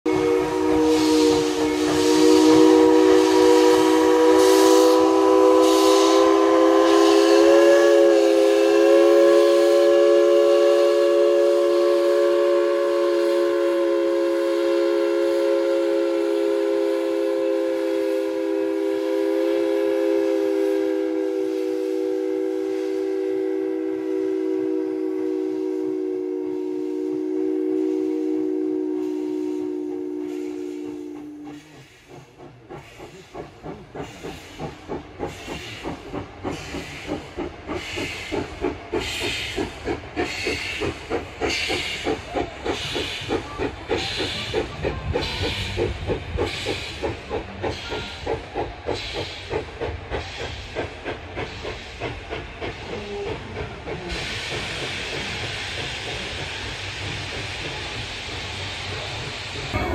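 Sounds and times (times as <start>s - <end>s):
steam locomotive chime whistle: 0.1s - 32.3s, 42.8s - 49.5s
steam exhaust puffs and hiss: 0.1s - 59.9s.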